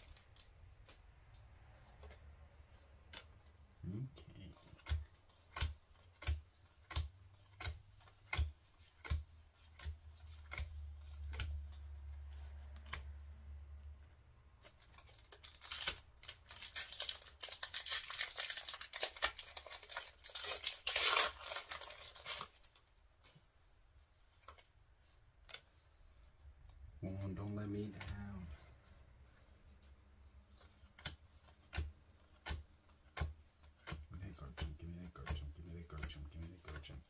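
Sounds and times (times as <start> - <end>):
foil wrapper tearing and crinkling: 14.6 - 22.8.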